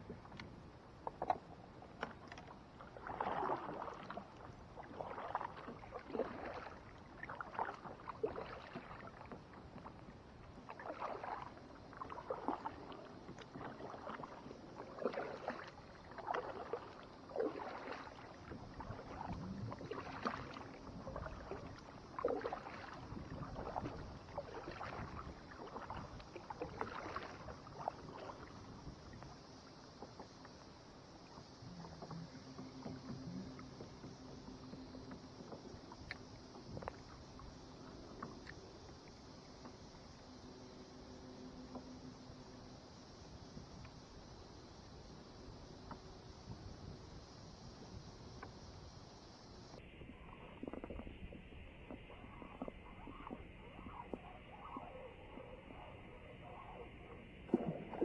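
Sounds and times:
kayak paddle splashing: 0.0s - 58.0s.

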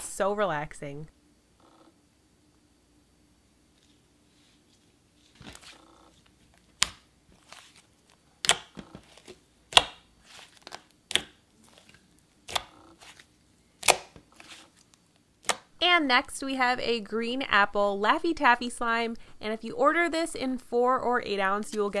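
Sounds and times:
slime squishing and crackling: 8.4s - 14.7s.

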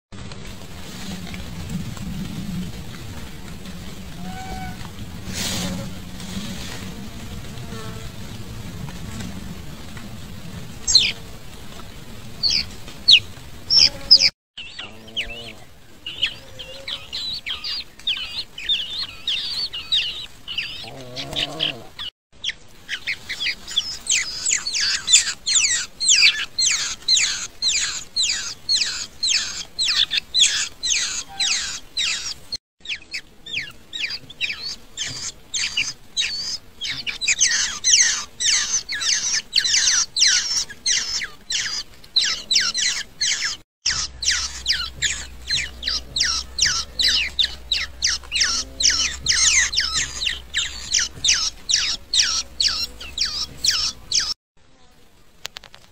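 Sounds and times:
nestlings chirping: 10.9s - 11.2s, 12.4s - 54.4s.

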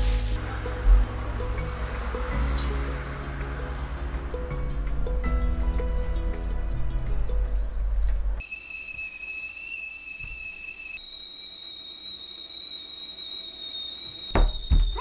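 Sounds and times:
kettle whistling: 8.4s - 15.0s.

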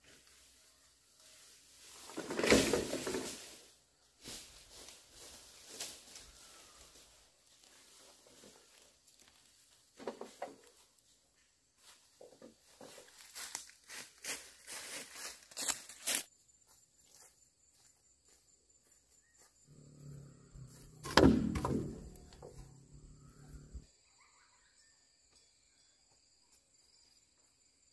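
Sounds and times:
footsteps in dry leaves: 4.2s - 9.9s, 11.8s - 20.0s
pole thudding on ground: 20.9s - 22.7s.

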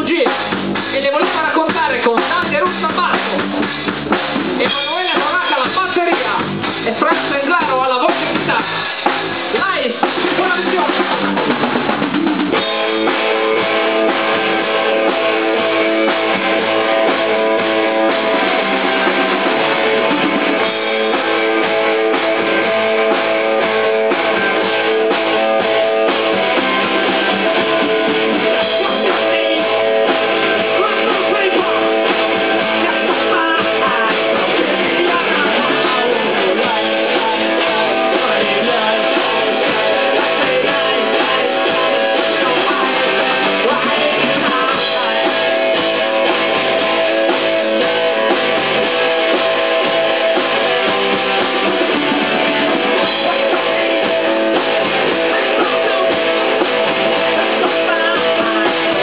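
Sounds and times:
drum kit beat: 0.0s - 59.0s
electric bass: 0.0s - 59.0s
electric guitar chords: 0.0s - 59.0s.

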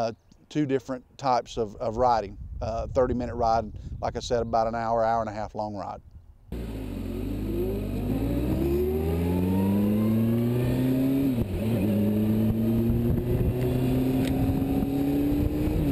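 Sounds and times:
wind rushing over microphone: 1.8s - 4.8s, 10.4s - 15.9s
motorcycle engine accelerating: 6.5s - 15.9s.

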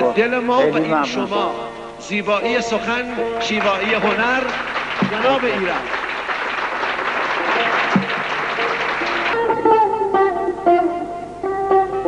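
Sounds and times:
plucked lute notes: 0.0s - 5.9s, 7.4s - 12.0s
audience applauding: 3.5s - 9.4s.

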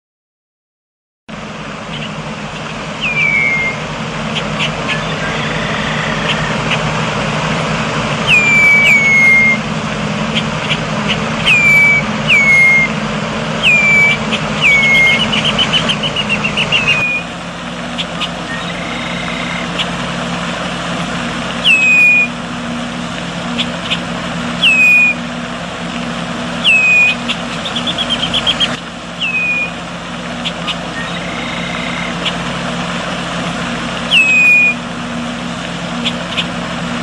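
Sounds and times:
bird chip notes: 1.8s - 20.2s, 21.2s - 25.3s, 26.4s - 32.7s, 34.0s - 36.6s
blackbird whistles: 1.9s - 6.8s, 8.2s - 9.6s, 10.3s - 13.0s, 13.6s - 20.0s, 21.6s - 22.4s, 24.6s - 25.2s, 26.6s - 29.8s, 30.4s - 32.4s, 34.1s - 34.8s
bird chattering trill: 1.9s - 6.9s, 8.2s - 9.6s, 10.2s - 12.9s, 13.6s - 20.0s, 21.6s - 22.3s, 23.5s - 25.2s, 26.6s - 32.5s, 34.1s - 34.8s, 36.0s - 36.6s.

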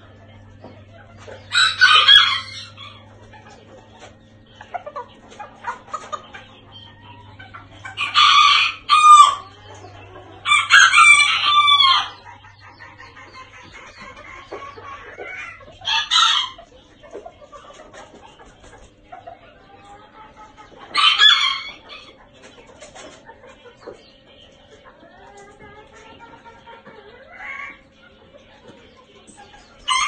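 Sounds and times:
cockerel crowing: 1.5s - 3.0s, 8.0s - 9.6s, 10.4s - 12.3s.

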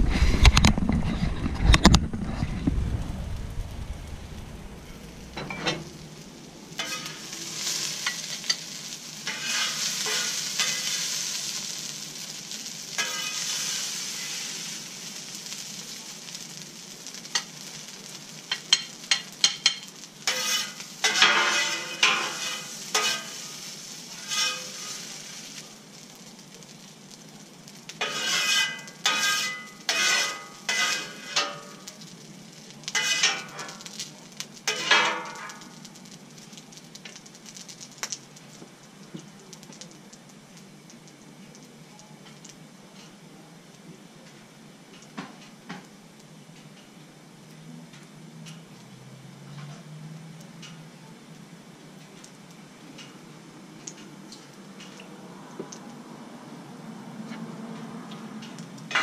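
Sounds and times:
food sizzling on griddle: 0.0s - 59.0s
metal spatula scraping griddle: 5.3s - 6.0s, 6.7s - 15.6s, 17.0s - 25.6s, 28.0s - 32.0s, 32.8s - 35.7s.

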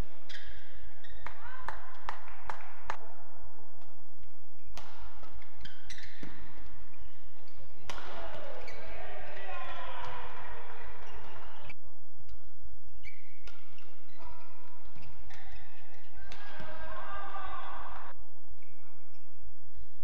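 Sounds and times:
shoes squeaking on court: 0.2s - 1.4s, 4.6s - 11.8s, 12.9s - 16.8s
racket hitting shuttlecock: 3.8s - 18.1s.

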